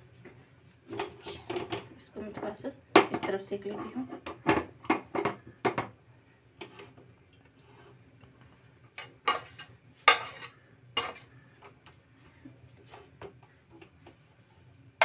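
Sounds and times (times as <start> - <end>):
metal kitchenware clattering: 9.0 - 11.3.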